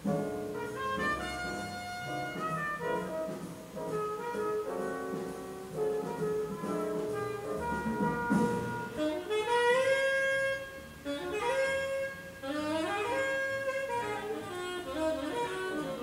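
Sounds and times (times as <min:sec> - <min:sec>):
instrumental melody with sliding notes: 0:00.0 - 0:16.0.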